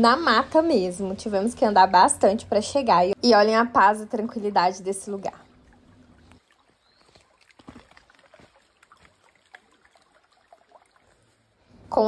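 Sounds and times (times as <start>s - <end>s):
small water splashes: 4.6s - 11.9s
stream flowing over stones: 4.8s - 11.8s.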